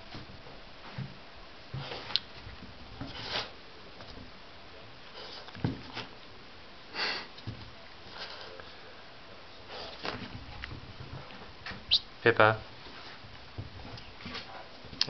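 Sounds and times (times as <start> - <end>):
dog sniffing: 9.6 - 10.2.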